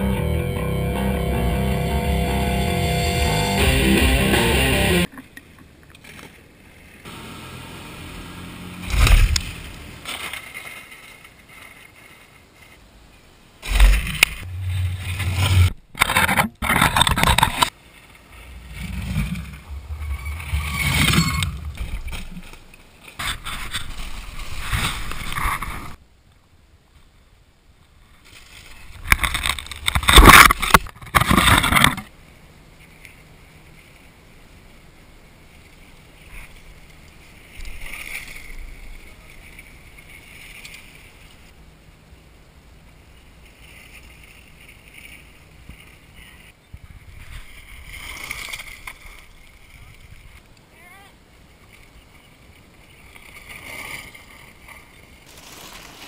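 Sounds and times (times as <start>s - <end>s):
mountain bike rushing past: 18.4s - 22.4s
tyres crunching over gravel: 55.2s - 56.0s.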